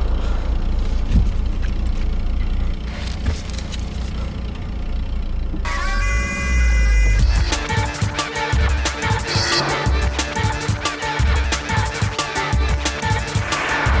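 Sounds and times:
road noise: 0:00.0 - 0:11.6, 0:12.3 - 0:14.0
car engine rumble: 0:00.0 - 0:14.0
music: 0:05.7 - 0:14.0.

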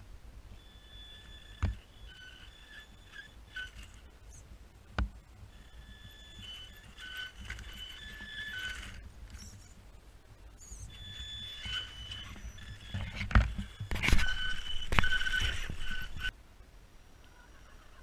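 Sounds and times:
rc car electric motor whining: 0:00.6 - 0:04.4, 0:05.5 - 0:09.8, 0:10.6 - 0:16.3.

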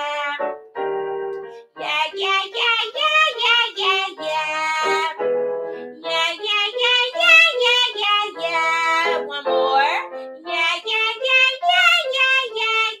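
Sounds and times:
woman singing vocal exercise: 0:08.4 - 0:10.8.

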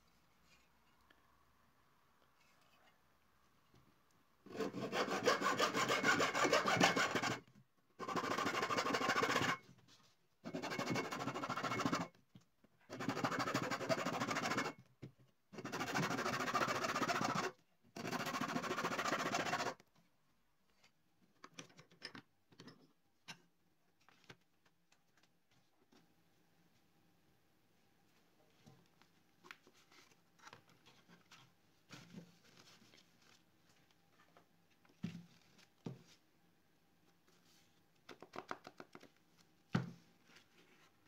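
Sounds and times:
hacksaw sawing paper: 0:04.5 - 0:07.4, 0:08.0 - 0:09.6, 0:10.5 - 0:12.1, 0:12.9 - 0:14.8, 0:15.6 - 0:19.8.

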